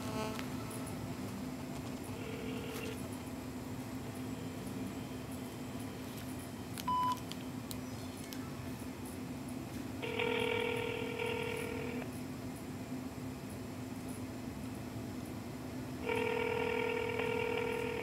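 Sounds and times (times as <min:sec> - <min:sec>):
steady low hum: 0:00.0 - 0:18.0
phone ringback tone: 0:02.1 - 0:03.0, 0:10.0 - 0:12.0, 0:16.0 - 0:18.0.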